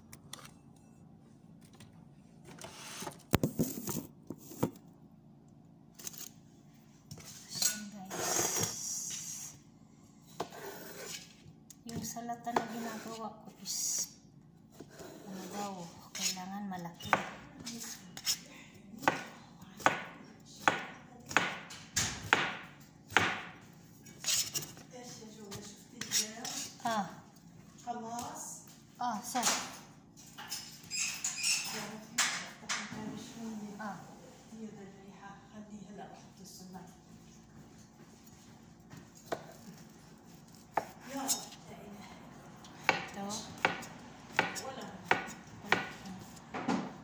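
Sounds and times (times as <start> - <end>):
knife chopping cucumber: 19.0 - 23.6, 39.2 - 39.8, 40.4 - 41.6, 42.8 - 46.9.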